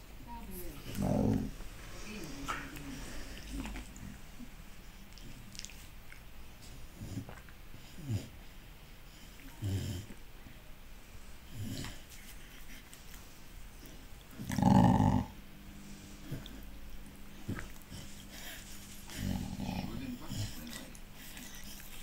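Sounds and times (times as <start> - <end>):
dogs grunting in play: 0.4 - 10.2, 11.4 - 12.9, 13.7 - 22.0
dog growling: 0.5 - 4.2, 11.5 - 12.0, 13.8 - 15.4, 17.3 - 22.0.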